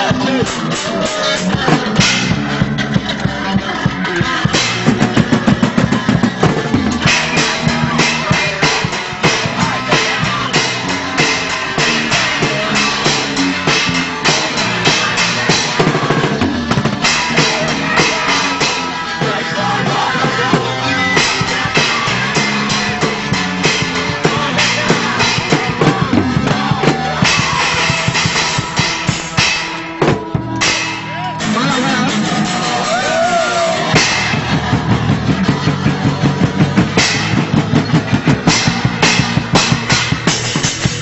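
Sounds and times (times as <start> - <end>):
bass drum: 0.0 - 41.0
drum kit quick hits: 20.4 - 41.0.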